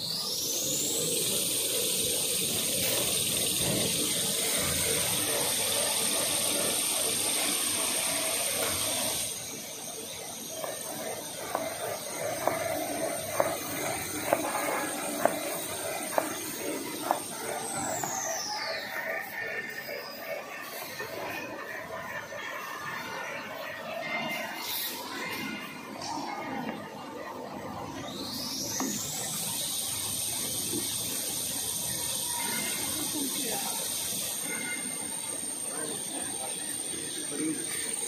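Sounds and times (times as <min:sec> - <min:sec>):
loud hiss: 0:00.0 - 0:20.1, 0:28.2 - 0:38.0
high-pitched machine whine: 0:00.0 - 0:38.0
machinery clacking: 0:00.7 - 0:23.1.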